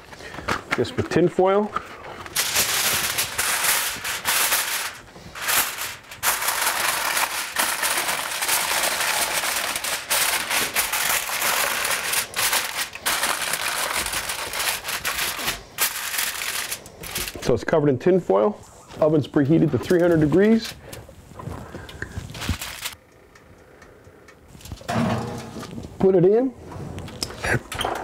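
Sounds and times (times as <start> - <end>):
aluminium foil crinkling: 1.8 - 17.5, 19.6 - 23.0.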